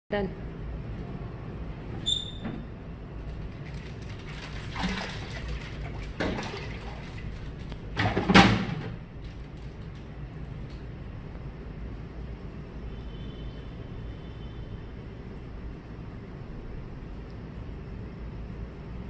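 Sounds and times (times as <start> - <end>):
steady low hum: 0.1 - 4.1
fish splashing at water surface: 3.4 - 8.6.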